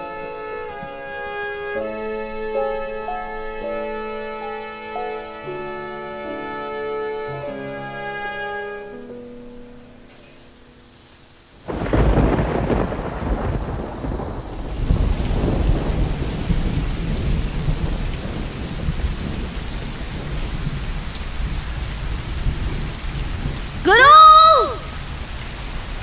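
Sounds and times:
heavy rain falling: 10.4s - 26.0s
thunderclap rumbling: 11.7s - 23.9s.

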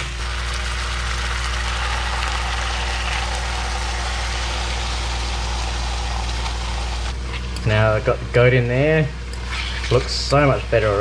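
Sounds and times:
meat sizzling in a wok: 0.0s - 7.1s
low hum: 0.0s - 10.0s.

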